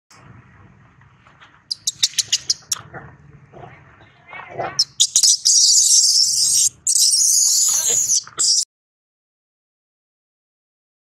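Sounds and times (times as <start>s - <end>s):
baby monkey squeaking: 1.7s - 2.8s, 4.8s - 8.6s
wavering cry: 4.8s - 8.6s.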